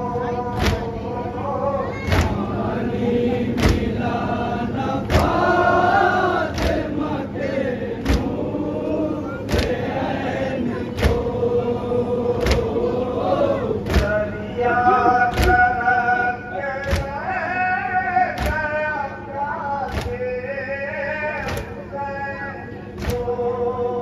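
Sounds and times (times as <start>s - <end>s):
rhythmic chest-beating strokes: 0.0s - 20.4s
other voices singing: 0.0s - 24.0s
man singing into a microphone: 14.0s - 24.0s.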